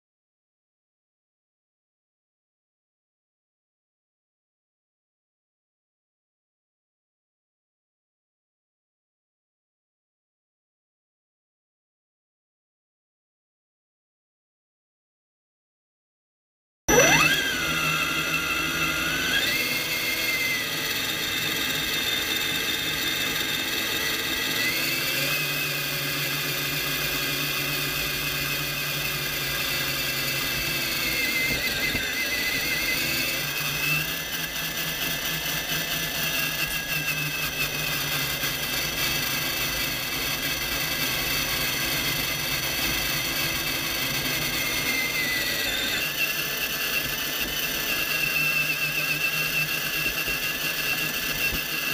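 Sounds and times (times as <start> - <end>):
rc truck motor and gears whining: 16.9 - 51.9.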